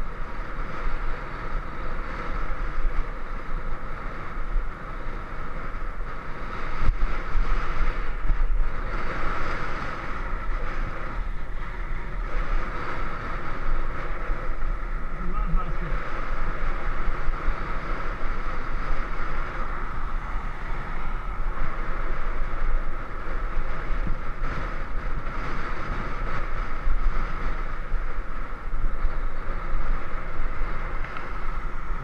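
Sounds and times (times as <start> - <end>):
low road rumble: 0.0 - 32.0
wind buffeting microphone: 0.0 - 32.0.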